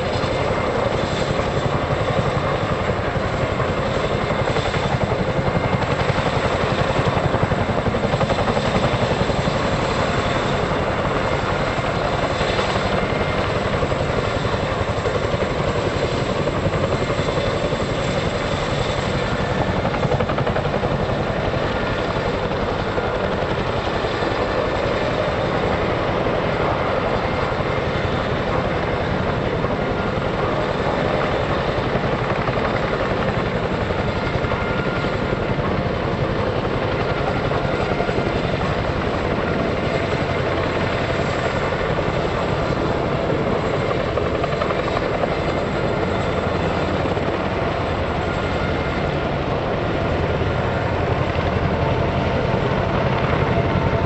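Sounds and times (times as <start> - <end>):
helicopter rotors beating: 0.0 - 54.0.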